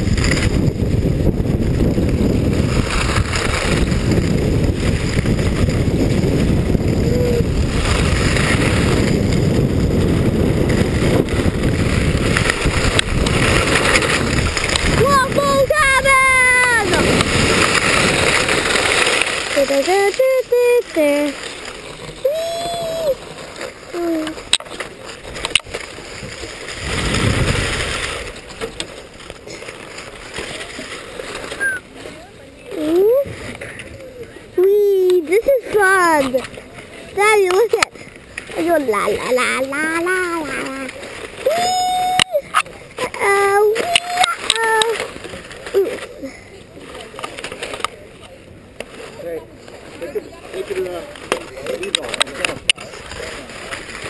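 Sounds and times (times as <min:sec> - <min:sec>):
wind buffeting microphone: 0:00.0 - 0:23.2, 0:25.2 - 0:28.4
skis scraping over snow: 0:00.0 - 0:31.9.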